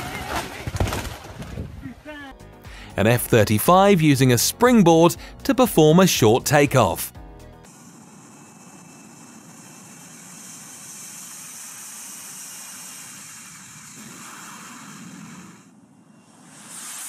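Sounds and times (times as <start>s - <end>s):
jet engine rushing hiss: 7.7s - 17.0s.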